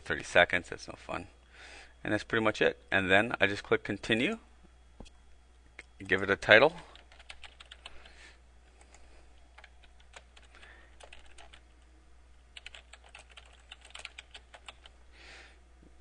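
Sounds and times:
faint keyboard typing: 0:06.6 - 0:11.8, 0:12.5 - 0:15.0.

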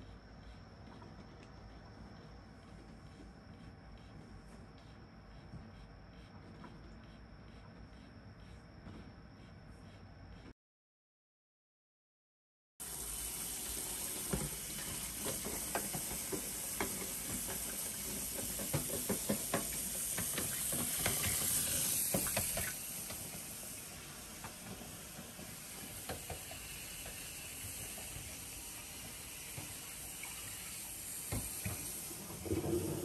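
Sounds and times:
tap running water into sink: 0:12.8 - 0:33.0.

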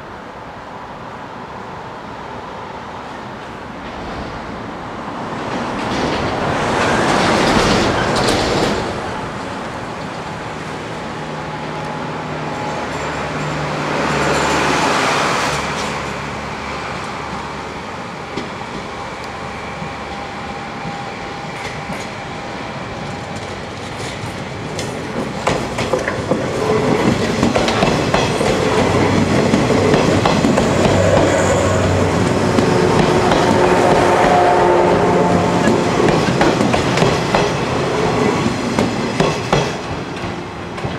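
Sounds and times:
train wheels clicking over rail joints: 0:05.5 - 0:10.2, 0:23.2 - 0:31.4, 0:32.2 - 0:34.4, 0:35.6 - 0:40.9.

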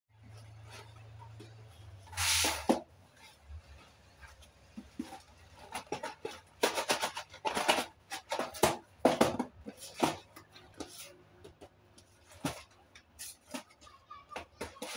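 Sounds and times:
cardboard rustling and tapping: 0:04.2 - 0:14.9.

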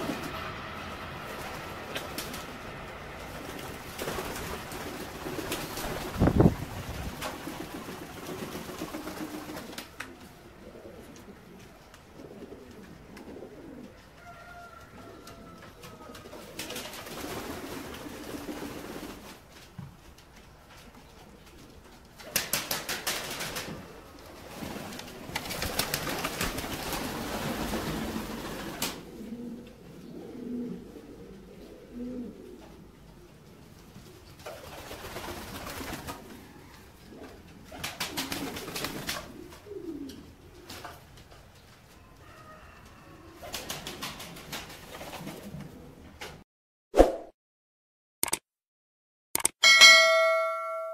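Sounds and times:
wings flapping: 0:01.3 - 0:02.6, 0:03.2 - 0:10.2, 0:15.3 - 0:19.7, 0:22.2 - 0:29.1, 0:34.4 - 0:36.4, 0:37.2 - 0:39.8, 0:43.4 - 0:46.4
pigeons cooing: 0:07.4 - 0:19.1, 0:23.4 - 0:41.1, 0:42.3 - 0:46.2.

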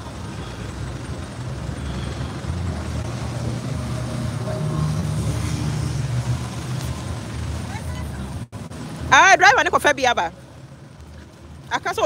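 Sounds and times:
vehicle engines in slow traffic: 0:00.0 - 0:12.0.

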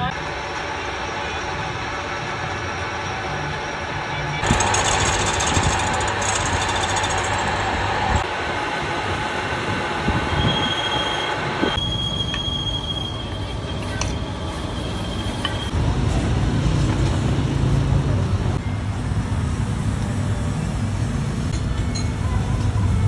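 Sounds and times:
milling machine motor hum: 0:00.2 - 0:08.4
metal lathe spinning: 0:00.2 - 0:08.5.

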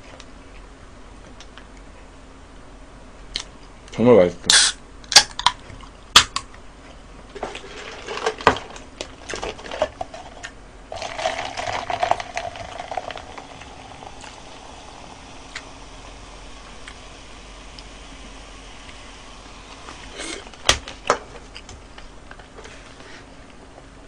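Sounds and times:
soda pouring and fizzing: 0:07.3 - 0:20.6.

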